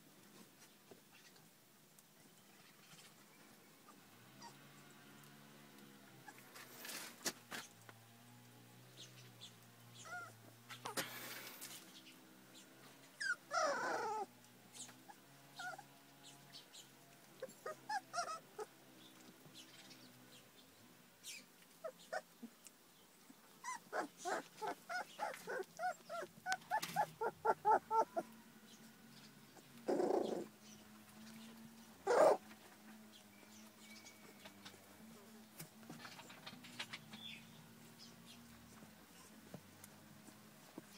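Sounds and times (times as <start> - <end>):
puppies whimpering and squeaking: 3.9 - 4.7, 10.0 - 11.0, 13.1 - 16.0, 17.4 - 19.3, 21.8 - 22.4, 23.6 - 28.3, 29.6 - 30.6, 31.2 - 39.5
puppy crying: 10.0 - 11.0, 13.2 - 14.3, 15.1 - 15.9, 17.4 - 18.7, 21.8 - 22.3, 23.6 - 28.3, 29.9 - 30.5, 32.0 - 32.4.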